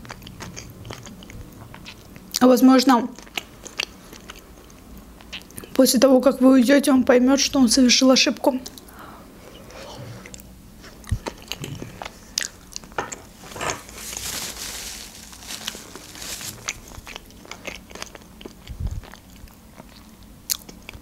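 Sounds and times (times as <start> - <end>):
chewing with wet mouth clicks: 3.2 - 5.8, 17.0 - 21.0
paper napkin rustling: 13.3 - 17.2.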